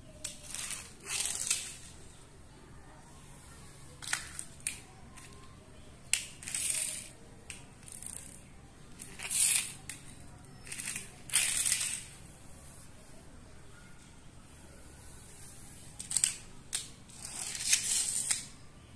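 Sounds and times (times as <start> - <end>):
toy wheels rushing on tile floor: 0.2 - 2.1, 6.1 - 12.2, 16.0 - 18.5.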